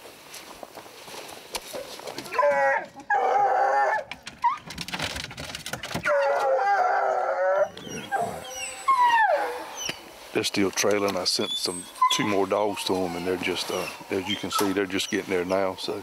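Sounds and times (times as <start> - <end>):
hounds howling and bawling: 1.8 - 4.8, 5.9 - 10.1, 10.8 - 16.0.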